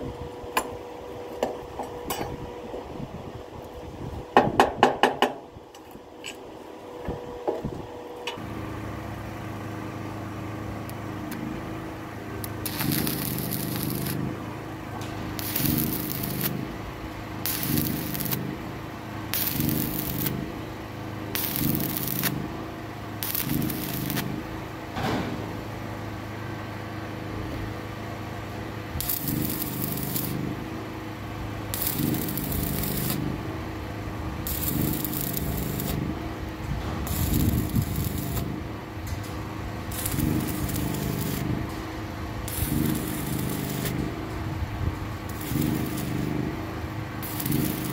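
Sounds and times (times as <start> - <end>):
low hum: 8.4 - 18.7, 28.4 - 47.9
welding arc crackling: 10.9 - 24.8, 28.7 - 47.9.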